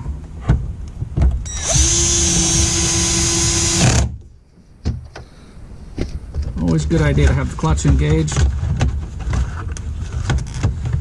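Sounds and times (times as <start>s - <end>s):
cordless drill driving screw: 1.5s - 4.1s.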